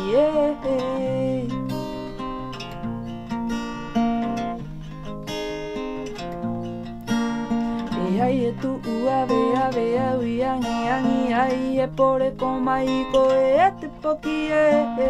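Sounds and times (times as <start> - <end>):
woman singing: 0.0 - 2.1, 7.9 - 15.0
acoustic guitar strumming chords: 0.0 - 15.0.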